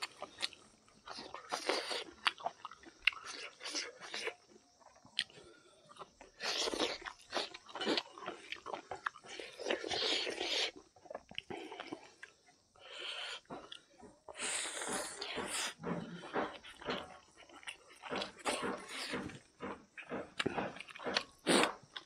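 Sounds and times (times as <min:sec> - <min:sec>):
chewing and crunching food: 0:00.0 - 0:22.0.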